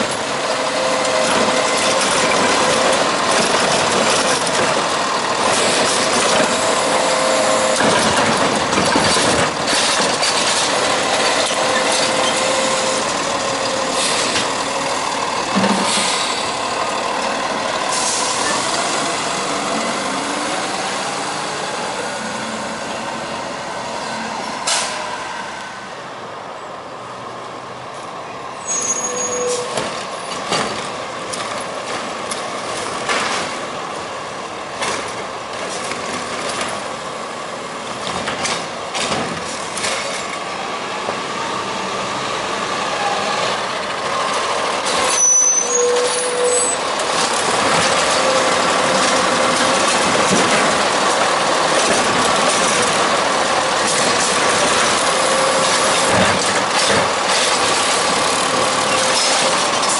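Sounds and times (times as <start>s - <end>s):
garbage truck engine running: 0.1s - 22.0s, 40.7s - 59.9s
air brakes hissing: 13.9s - 14.5s, 15.7s - 16.6s, 17.9s - 18.9s, 24.6s - 25.2s.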